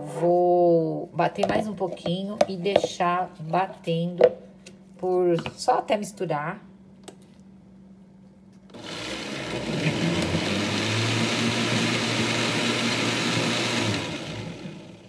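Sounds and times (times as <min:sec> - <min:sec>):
blender motor running: 0:08.7 - 0:15.0.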